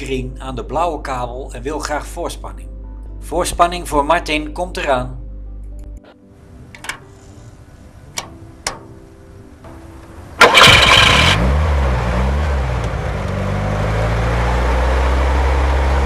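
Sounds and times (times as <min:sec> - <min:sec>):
winch engine starting and idling: 0:10.4 - 0:11.8.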